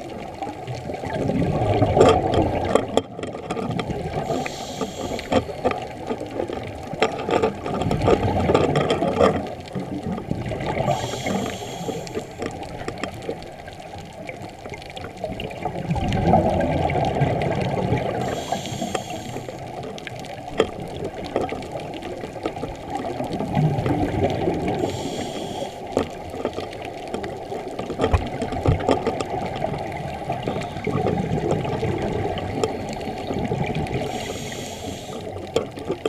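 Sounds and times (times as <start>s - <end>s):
underwater exhaled air bubbling: 0.0s - 36.0s
hissing inhalation through regulator: 4.2s - 5.6s, 10.8s - 12.4s, 18.1s - 19.7s, 24.7s - 26.0s, 34.0s - 35.4s.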